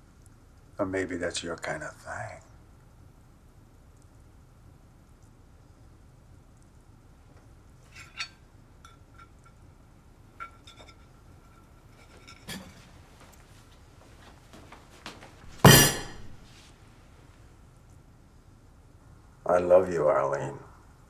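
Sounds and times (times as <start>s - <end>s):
glass clinking on wooden table: 15.6s - 16.4s.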